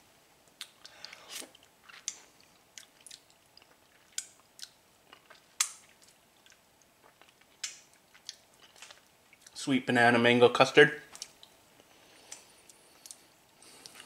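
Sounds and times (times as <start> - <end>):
wet mouth smacks while eating: 0.6 - 2.2, 2.8 - 9.5, 11.1 - 11.6, 12.3 - 13.2.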